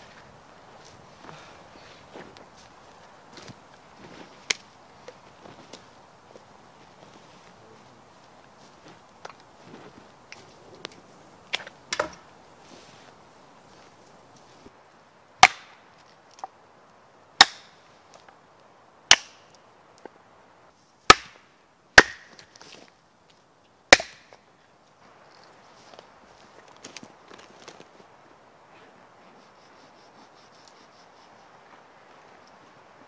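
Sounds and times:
axe chopping wood: 11.6s - 12.2s, 15.4s - 15.8s, 17.4s - 17.8s, 19.1s - 19.4s, 21.1s - 21.4s, 22.0s - 22.5s, 23.9s - 24.4s.

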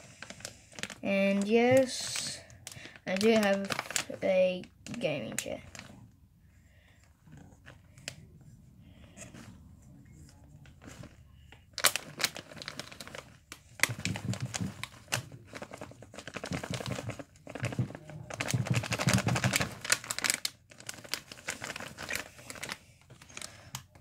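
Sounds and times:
packet crumpling and tearing: 0.0s - 5.9s, 11.7s - 23.6s.

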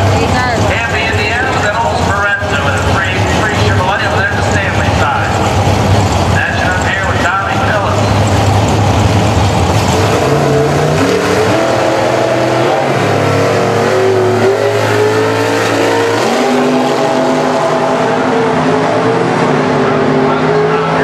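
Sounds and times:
drag car engines revving: 0.0s - 21.0s.

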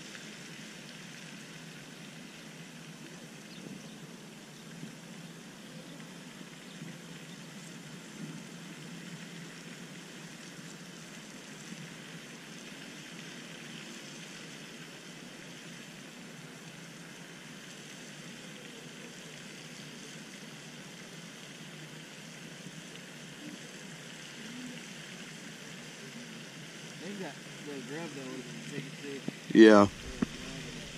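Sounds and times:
fountain water falling: 0.0s - 30.9s.

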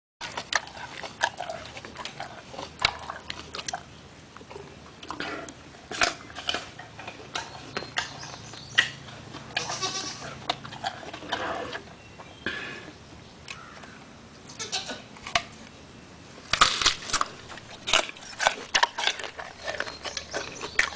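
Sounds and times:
gorilla chewing apple: 0.2s - 12.4s, 16.5s - 20.9s.

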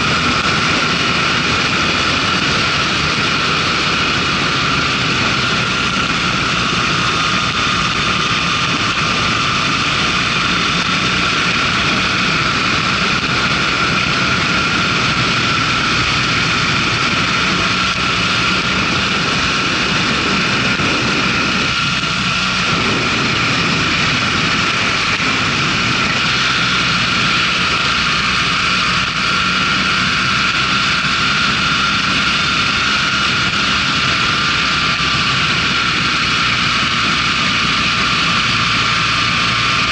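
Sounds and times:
wind rushing: 0.0s - 30.3s
motorcycle engine running: 0.0s - 39.9s.

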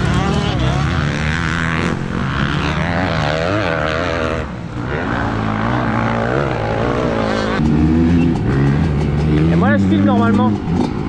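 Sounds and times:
motorbike engine revving: 0.0s - 11.0s.

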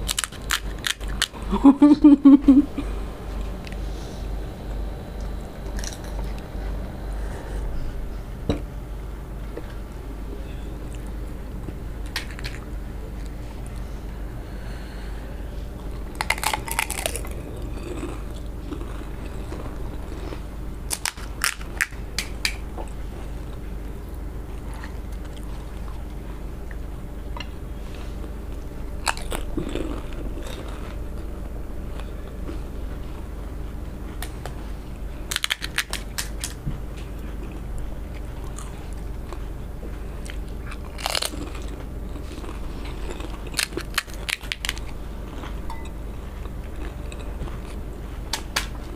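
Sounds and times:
crisp shells crunching when chewed: 0.0s - 1.6s, 5.2s - 6.5s, 12.0s - 13.8s, 15.8s - 22.6s, 29.0s - 31.2s, 35.3s - 39.5s, 40.2s - 48.9s
steady low hum: 0.0s - 48.9s.

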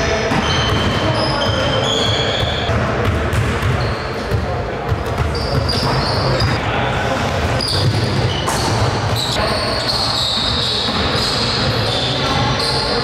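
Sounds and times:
sneakers squeaking: 0.2s - 13.0s
basketball bouncing: 2.0s - 6.6s.

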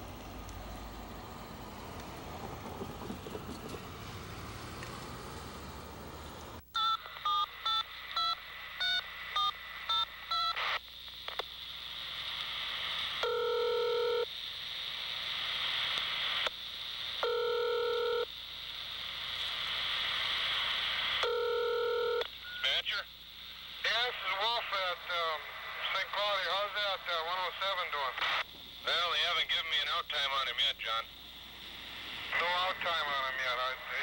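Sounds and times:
outdoor rumble: 0.0s - 6.6s
phone line hiss: 6.7s - 34.0s
telephone ringback tone: 6.8s - 10.6s, 13.2s - 14.2s, 17.2s - 18.3s, 21.2s - 22.2s
touch-tone dialing beeps: 6.8s - 10.6s.

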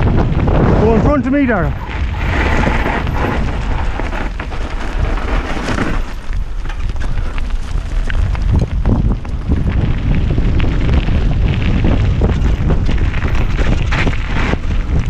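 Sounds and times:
tyres rumbling over gravel: 0.0s - 15.0s
wind buffeting microphone: 0.0s - 15.0s
bike knocking and rattling: 1.3s - 15.0s.

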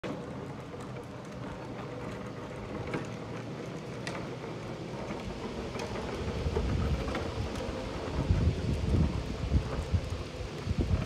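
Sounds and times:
plastic toy wheels on asphalt: 0.0s - 11.0s
wind buffeting microphone: 4.9s - 11.0s.

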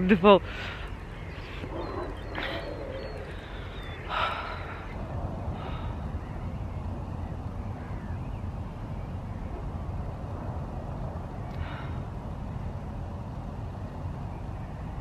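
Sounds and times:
wind buffeting microphone: 0.0s - 15.0s
woman breathing out: 3.5s - 5.0s, 11.5s - 12.1s.

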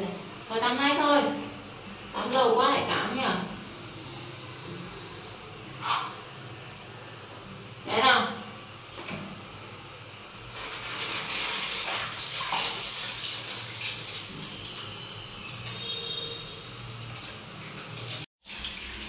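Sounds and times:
shower head spraying water: 10.5s - 19.0s.

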